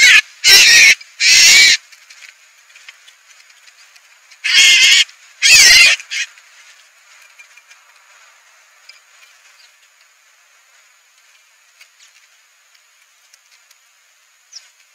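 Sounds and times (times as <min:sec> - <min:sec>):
birds flapping and squawking: 0:00.0 - 0:07.9
faint high hiss: 0:00.0 - 0:14.9.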